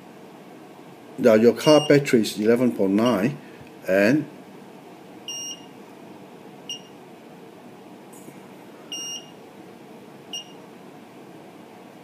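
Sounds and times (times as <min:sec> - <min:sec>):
steady low hum: 0:00.0 - 0:12.0
high-pitched warning beeps: 0:01.6 - 0:02.0, 0:05.3 - 0:05.7, 0:06.7 - 0:07.0, 0:08.9 - 0:09.4, 0:10.3 - 0:10.6.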